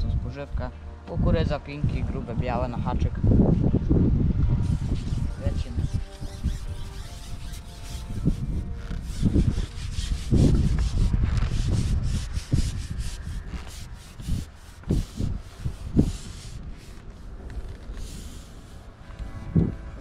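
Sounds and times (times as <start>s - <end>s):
fishing pole rubbing strokes: 4.6s - 19.1s.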